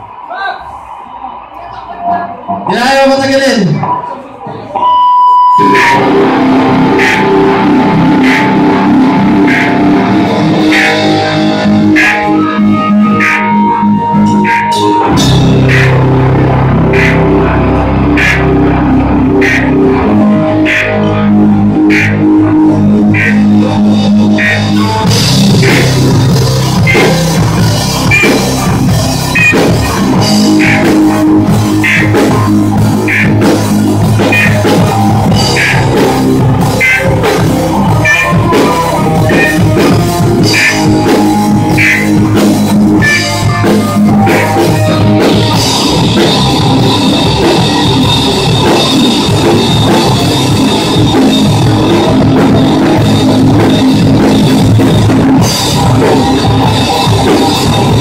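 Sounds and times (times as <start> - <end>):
live rock band playing: 2.3 - 58.0.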